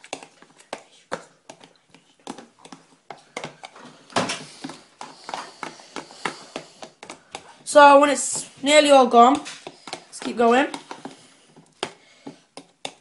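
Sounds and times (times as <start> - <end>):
fork tapping on plastic tub: 9.3 - 11.2.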